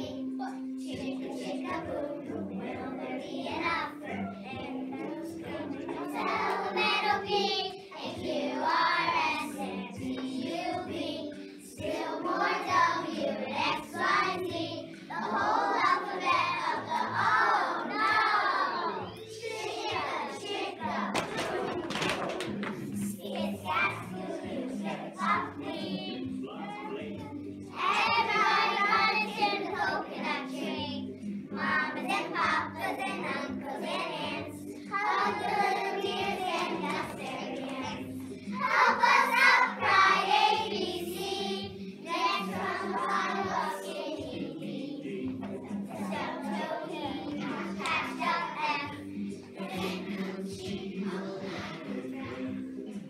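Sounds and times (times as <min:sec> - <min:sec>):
children singing together: 0:00.0 - 0:53.0
musical accompaniment: 0:00.0 - 0:53.0.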